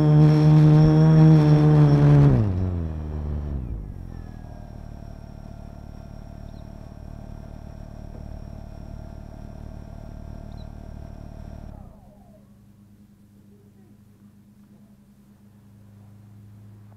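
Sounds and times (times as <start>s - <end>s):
drone propellers spinning down: 0.0s - 13.1s
motor hum with high whine: 0.0s - 16.9s.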